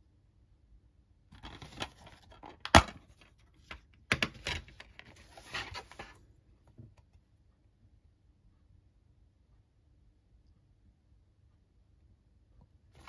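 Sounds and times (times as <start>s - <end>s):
plastic case snapping open: 1.4s - 3.0s.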